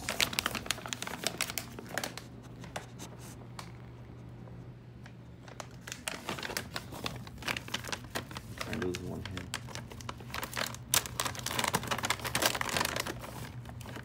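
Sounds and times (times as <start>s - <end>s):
plastic bag crinkling: 0.0s - 3.4s, 5.4s - 14.0s
low steady hum: 0.0s - 14.0s.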